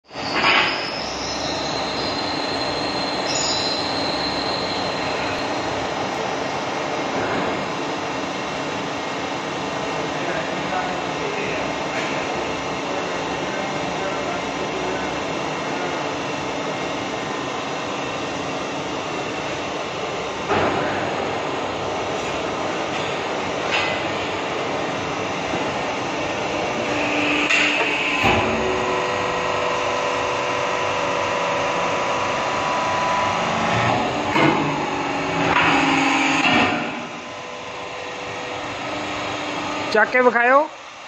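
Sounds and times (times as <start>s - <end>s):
hydraulic pump motor humming: 11.2s - 40.2s.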